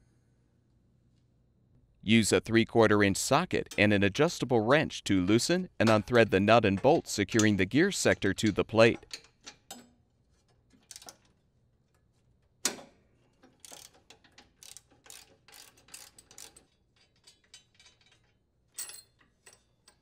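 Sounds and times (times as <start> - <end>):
ratchet wrench clicking: 13.5 - 20.0.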